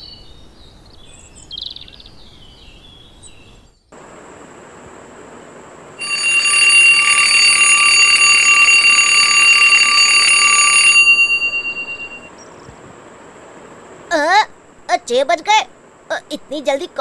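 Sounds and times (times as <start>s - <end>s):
alarm clock bells ringing: 6.0s - 12.3s.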